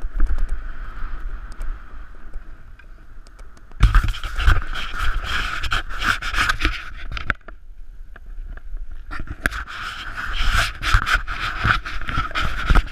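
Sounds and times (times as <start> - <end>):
skis scraping over packed snow: 3.8 - 7.3, 9.0 - 12.9.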